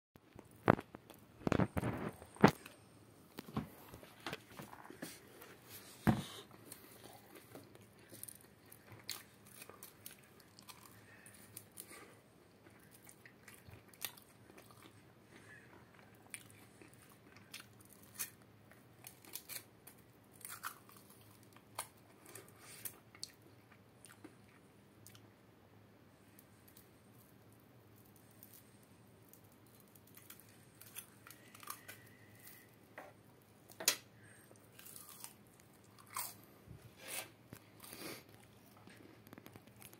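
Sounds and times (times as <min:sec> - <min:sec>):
crisp fried food crunching: 0:00.6 - 0:02.8, 0:06.8 - 0:25.2, 0:28.2 - 0:32.7, 0:34.5 - 0:36.5.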